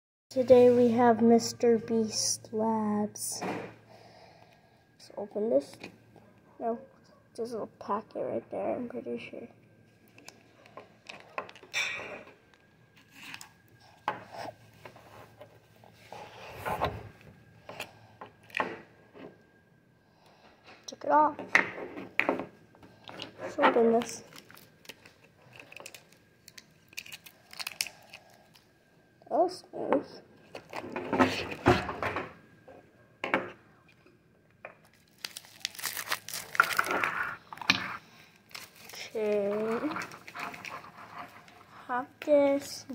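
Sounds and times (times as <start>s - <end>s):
plastic wrapper crinkling: 23.9s - 28.7s, 34.8s - 41.6s
plastic scraping and rubbing: 38.6s - 41.7s.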